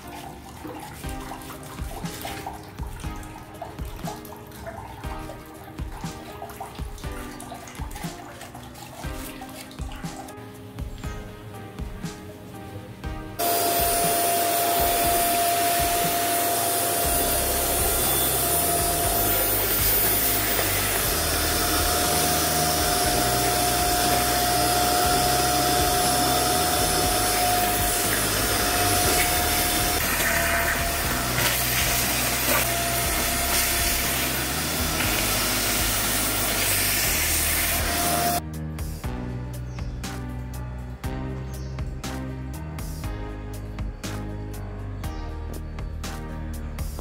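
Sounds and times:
vacuum cleaner running: 13.4 - 38.4.

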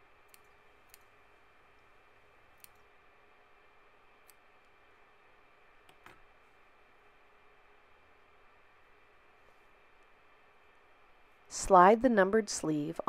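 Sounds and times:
scissors snipping thread: 0.2 - 1.1, 2.6 - 2.9.

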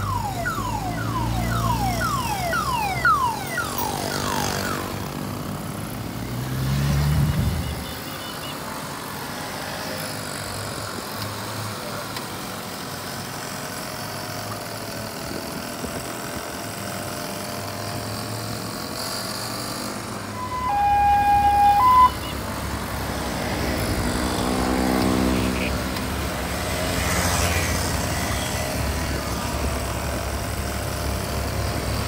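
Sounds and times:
siren-like horn: 0.0 - 5.2, 20.3 - 25.8
moped engines passing: 0.0 - 15.5, 16.1 - 32.0.

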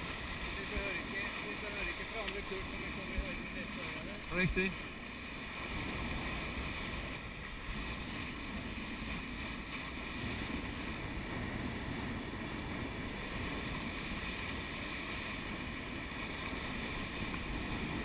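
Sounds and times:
water rushing past a hull: 0.0 - 18.0.

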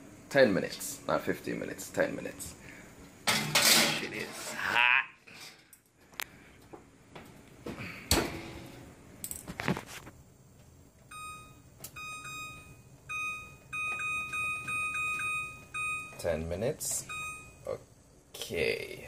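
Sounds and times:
metallic clanks of oven door: 3.3 - 4.2.

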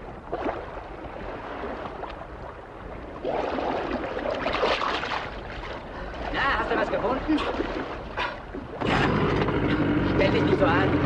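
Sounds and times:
sea water sloshing: 0.0 - 11.0
loud churning splashes: 3.0 - 11.0.

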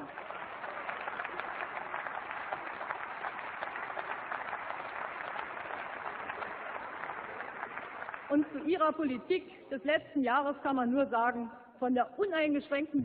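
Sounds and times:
crowd applauding: 0.0 - 8.8.

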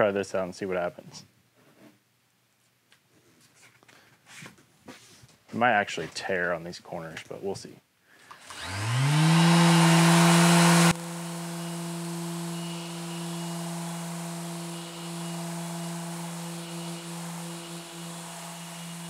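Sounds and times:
orbital sander humming: 8.4 - 19.0.

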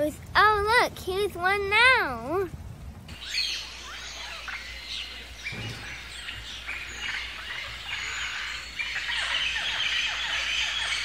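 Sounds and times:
birds chirping: 3.0 - 11.0.

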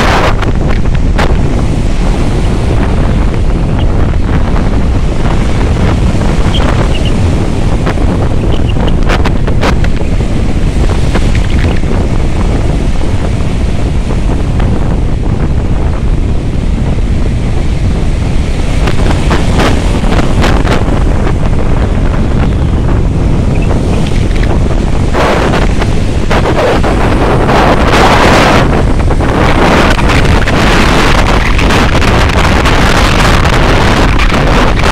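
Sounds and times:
sea surf breaking: 0.0 - 34.9
wind buffeting microphone: 0.0 - 34.9.

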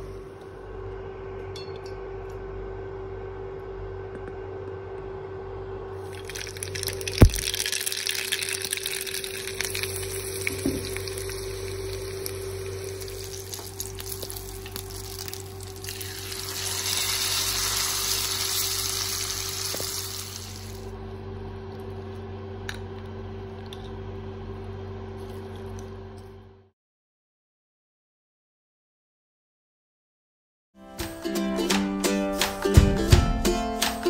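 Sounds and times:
hot oil poured sizzling: 6.0 - 20.9
spices sizzling in hot oil: 6.0 - 20.9.

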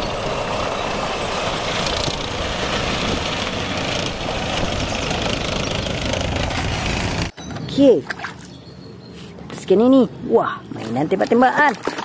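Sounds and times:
tank engine and tracks: 0.0 - 7.8.

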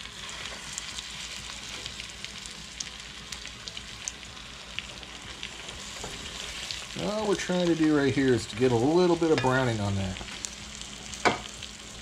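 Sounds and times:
chicken sizzling in butter: 0.0 - 12.0.

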